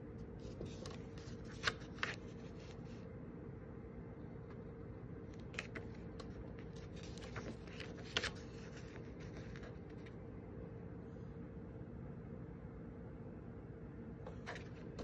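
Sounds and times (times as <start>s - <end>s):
faint steady hum: 0.0s - 15.0s
paper rustling: 0.4s - 3.0s, 5.3s - 10.2s, 14.3s - 15.0s.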